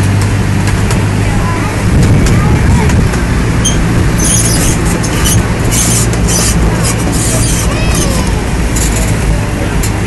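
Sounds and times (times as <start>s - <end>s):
ride train rumbling: 0.0s - 10.0s
faint squeals: 3.6s - 9.0s.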